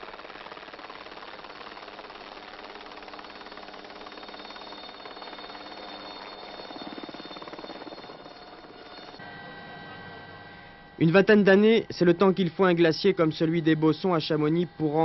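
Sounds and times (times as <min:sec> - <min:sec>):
helicopter engine hum: 0:00.0 - 0:11.0
helicopter rotor beating: 0:00.0 - 0:15.0.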